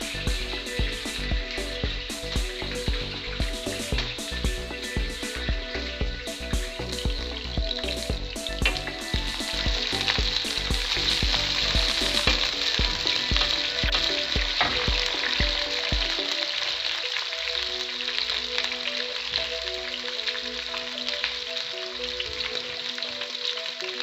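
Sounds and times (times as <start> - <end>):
wooden spatula stirring in pan: 0.0 - 17.4
background music with steady beat: 0.0 - 24.0
onions sizzling in hot oil: 0.0 - 24.0.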